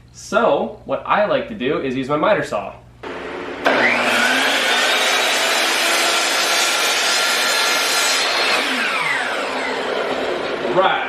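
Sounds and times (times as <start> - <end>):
electric saw cutting wood: 3.0 - 11.0.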